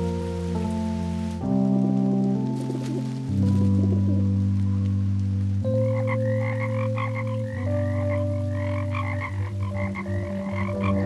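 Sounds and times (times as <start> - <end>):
low held frog croaks: 5.8 - 11.0
quick high frog croaks: 6.0 - 11.0.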